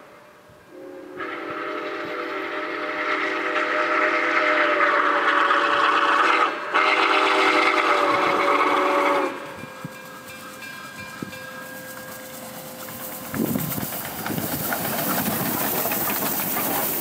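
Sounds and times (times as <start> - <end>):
steam locomotive whistle: 0.0 - 9.8
approaching locomotive: 0.0 - 17.0.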